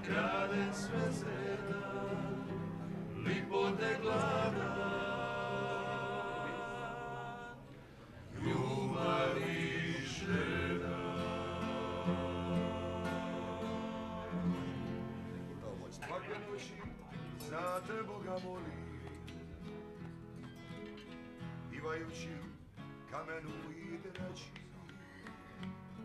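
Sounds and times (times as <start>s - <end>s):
men singing in harmony: 0.0s - 7.6s, 8.3s - 15.1s
acoustic guitar: 0.0s - 26.0s.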